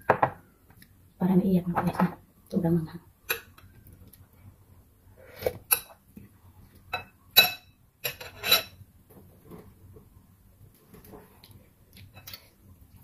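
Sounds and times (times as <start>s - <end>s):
cutlery clinking on glass bowl: 6.9s - 8.8s.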